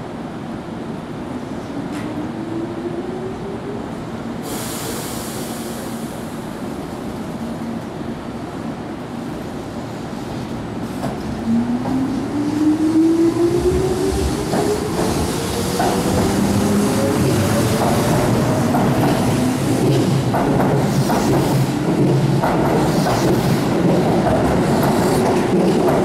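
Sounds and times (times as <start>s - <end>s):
train air hiss: 4.3s - 7.3s.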